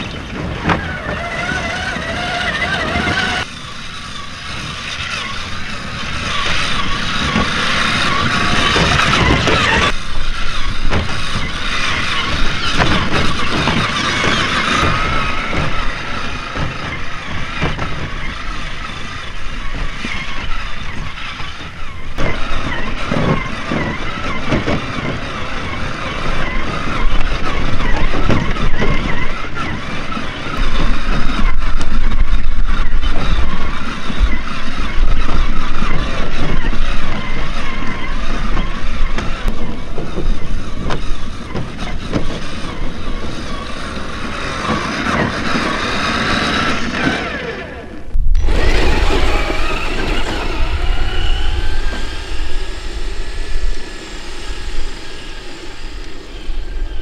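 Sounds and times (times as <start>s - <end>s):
electric motor and gears whining: 0.0s - 57.0s
heavy low rumble: 48.0s - 57.0s.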